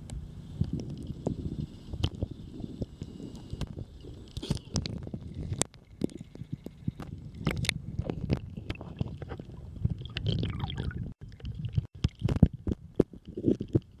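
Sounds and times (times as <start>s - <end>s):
seawater sloshing and gurgling: 4.0s - 12.6s.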